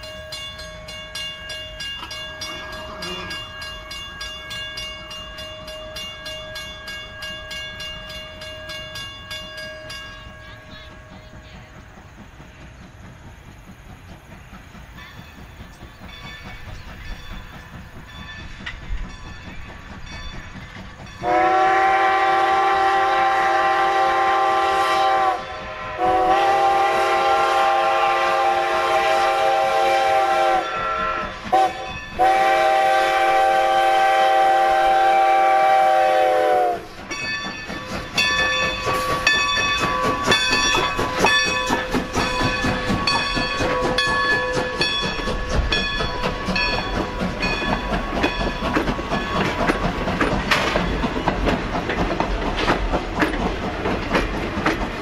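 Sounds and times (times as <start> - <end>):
approaching train: 0.0 - 55.0
train rhythmic clatter: 0.0 - 55.0
steam whistle blasts: 21.2 - 37.0.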